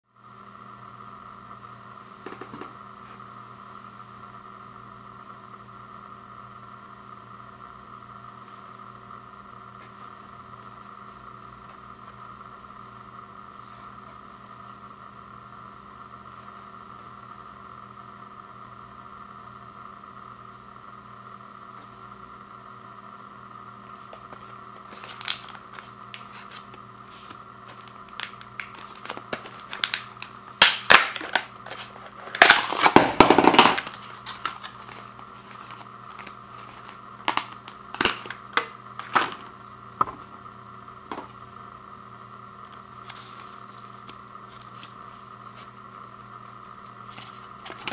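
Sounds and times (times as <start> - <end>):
faint hum: 0.1 - 47.9
plastic packaging crackling: 24.8 - 39.5.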